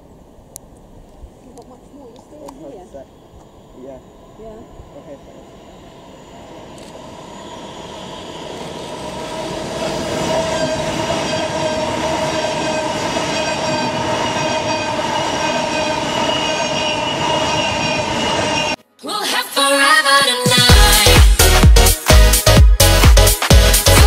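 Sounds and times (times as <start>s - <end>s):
wheel-on-rail noise: 1.4s - 18.8s
train traction motors whining: 1.6s - 18.8s
dance music: 19.0s - 24.0s.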